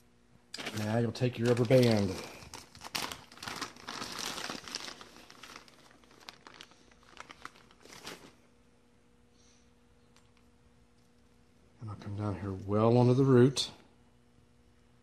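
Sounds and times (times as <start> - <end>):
faint steady hum: 0.0 - 15.0
packaging crinkling and rustling: 0.5 - 8.4.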